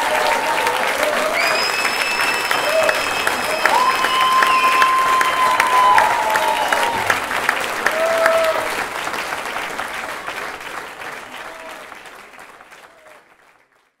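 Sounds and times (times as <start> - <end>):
crowd calling out: 0.0 - 8.8
audience applauding: 0.0 - 14.0.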